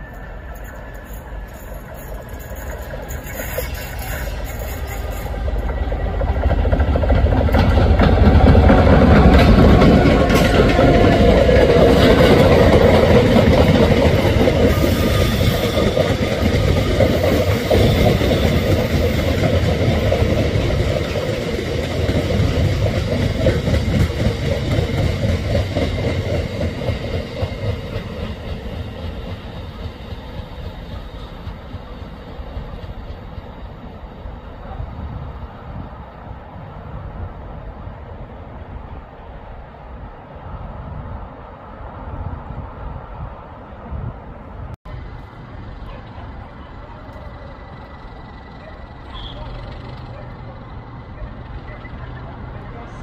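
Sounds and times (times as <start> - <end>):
train wheels clattering on rails: 0.0 - 34.3, 45.0 - 53.0.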